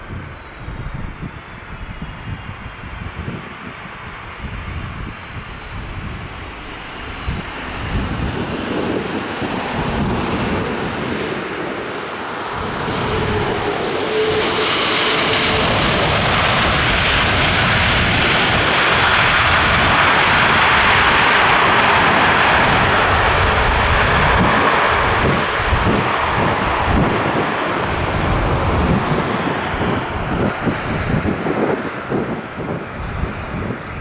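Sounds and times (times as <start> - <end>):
airplane engines at high power: 0.0 - 34.0.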